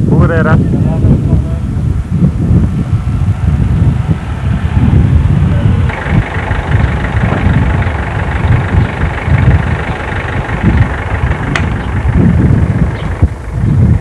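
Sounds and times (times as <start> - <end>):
steady rumble: 0.0 - 14.0
wind buffeting microphone: 0.0 - 14.0
sharp click: 11.5 - 11.9.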